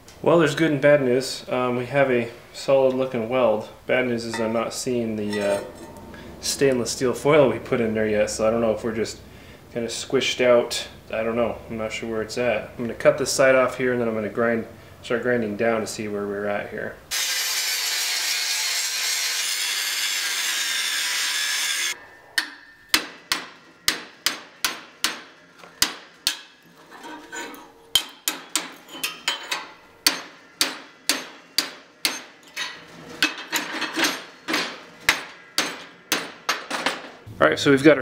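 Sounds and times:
angle grinder cutting steel: 17.1 - 22.6
hammer strikes on steel: 22.4 - 26.6, 27.9 - 32.5, 33.2 - 37.0.

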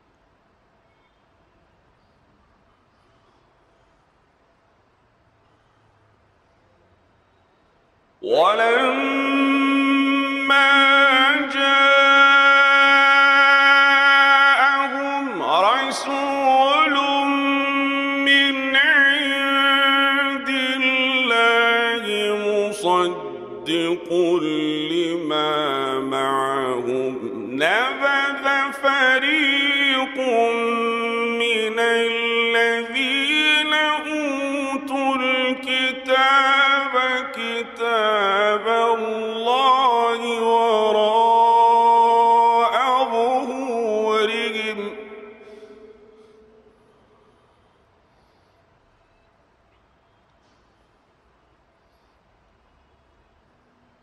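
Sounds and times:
man chanting recitation: 8.2 - 46.4.

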